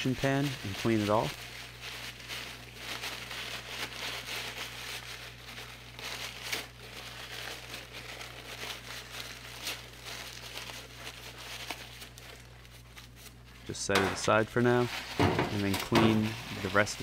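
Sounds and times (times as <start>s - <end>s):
rags crumpling and rubbing: 0.0s - 17.0s.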